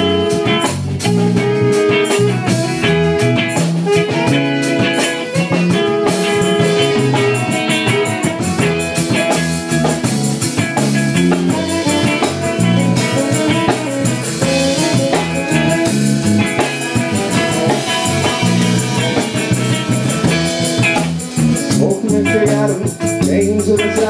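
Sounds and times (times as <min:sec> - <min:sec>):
rock band playing: 0:00.0 - 0:24.0
cymbals beating: 0:05.0 - 0:21.7.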